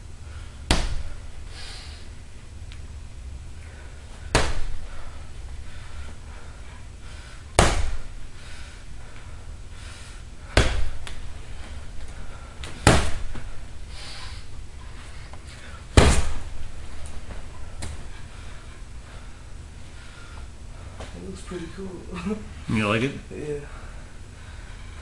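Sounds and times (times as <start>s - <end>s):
fists punching a bag: 0.6s - 1.2s, 4.2s - 5.0s, 7.5s - 8.2s, 10.4s - 11.2s, 12.6s - 13.5s, 15.9s - 16.6s.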